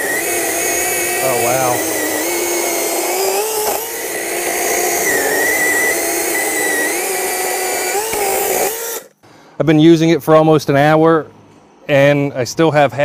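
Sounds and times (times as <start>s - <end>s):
electric chainsaw cutting log: 0.0s - 9.2s.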